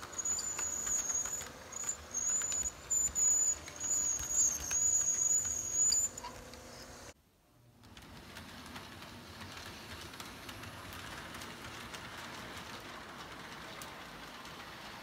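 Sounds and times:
model train whine: 0.0 - 7.2
wheels clicking on rails: 0.0 - 15.0.

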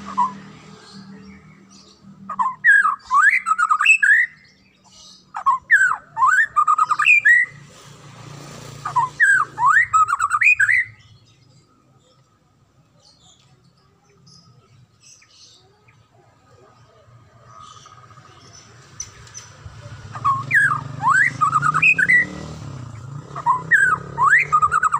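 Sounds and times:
bird singing whistled notes: 0.0 - 7.6, 8.8 - 11.7, 17.7 - 24.9.

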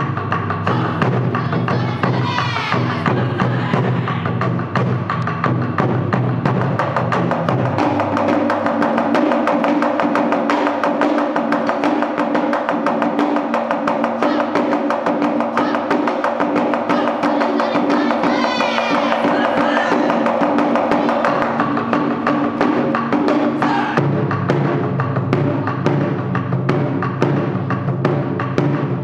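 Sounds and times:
taiko drums: 0.0 - 29.0
drummers shouting: 0.6 - 4.6, 14.0 - 22.6, 23.4 - 24.1.

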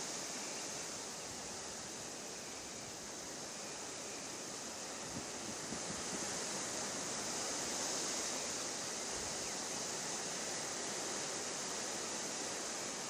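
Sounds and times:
wind rushing through trees: 0.0 - 13.0
wind buffeting microphone: 5.0 - 6.6.

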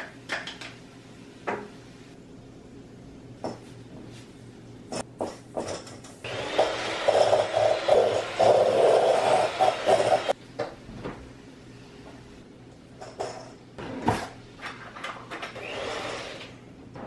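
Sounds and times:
kitchenware knocks and clinks: 4.9 - 6.1, 13.0 - 15.6.

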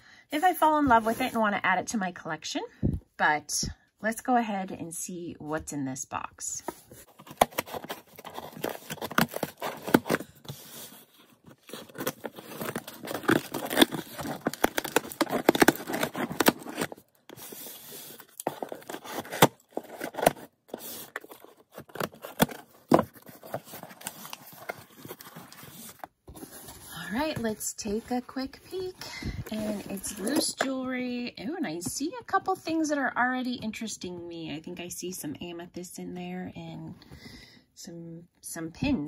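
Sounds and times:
cardboard flaps crinkling: 6.7 - 30.6
packing tape ripping off cardboard: 7.1 - 26.0.

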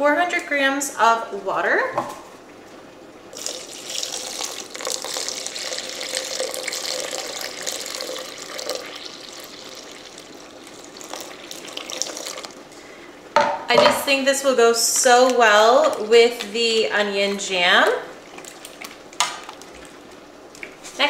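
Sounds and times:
water pouring into a bowl: 3.3 - 12.6.

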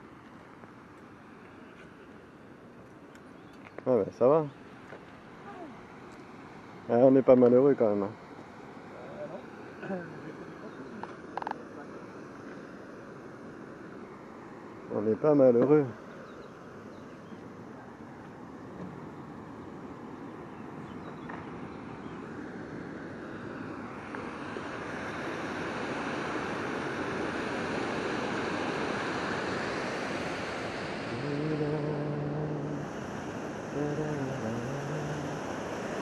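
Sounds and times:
water rushing over a weir: 23.8 - 36.0
low steady hum: 31.0 - 36.0.

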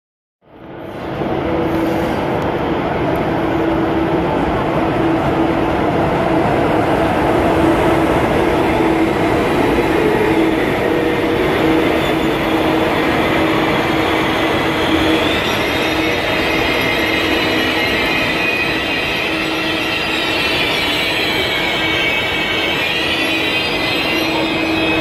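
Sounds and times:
train wheels rumbling on rails: 0.5 - 25.0
high-pitched wheel squeal: 8.5 - 25.0.

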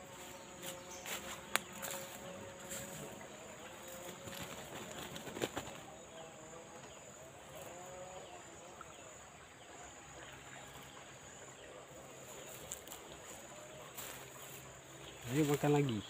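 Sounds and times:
high-pitched insect drone: 0.0 - 5.0.

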